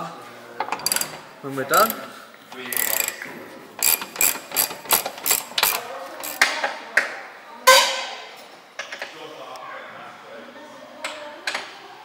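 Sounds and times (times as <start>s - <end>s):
hand ratchet clicking: 0.7s - 2.0s, 2.7s - 3.2s, 3.8s - 6.5s.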